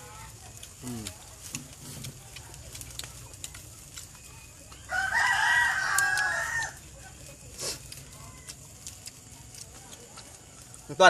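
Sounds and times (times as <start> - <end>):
rooster crowing: 4.9 - 6.8.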